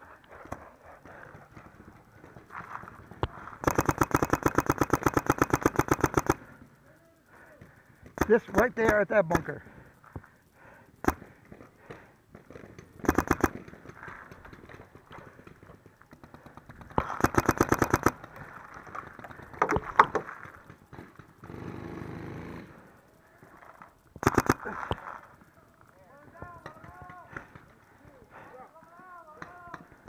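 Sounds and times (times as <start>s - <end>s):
paintball marker firing: 3.2s - 6.4s, 13.0s - 14.7s, 16.2s - 18.3s, 24.2s - 25.0s.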